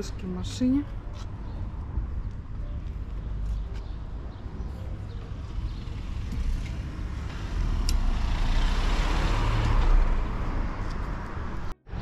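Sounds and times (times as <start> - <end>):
car passing: 5.4 - 12.0.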